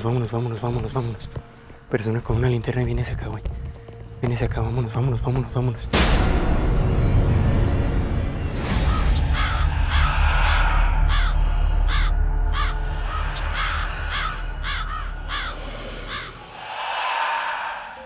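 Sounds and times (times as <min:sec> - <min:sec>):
deep rumble: 0:05.9 - 0:18.0
crow cawing: 0:08.8 - 0:18.0.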